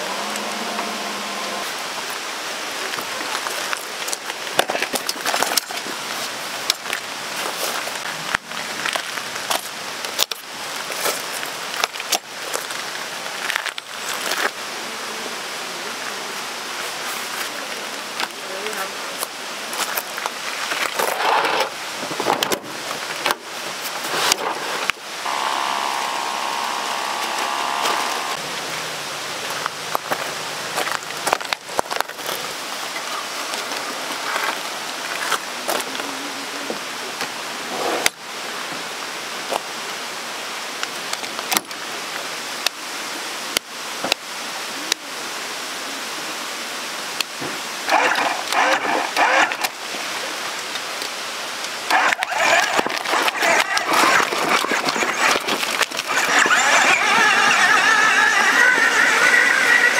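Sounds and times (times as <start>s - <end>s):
pitched hum: 0.0s - 2.2s, 25.1s - 29.3s, 52.1s - 59.9s
rushing water: 0.0s - 59.9s.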